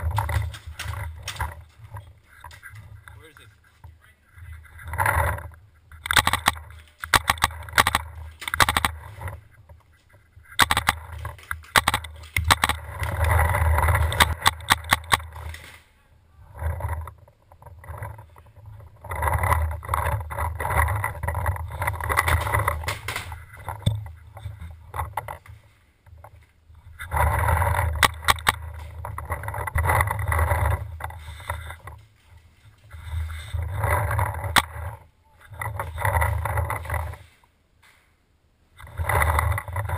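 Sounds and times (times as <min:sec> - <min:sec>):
rough rumbling noise: 0:00.0 - 0:39.9
paintball markers firing: 0:10.6 - 0:12.9, 0:22.0 - 0:24.0.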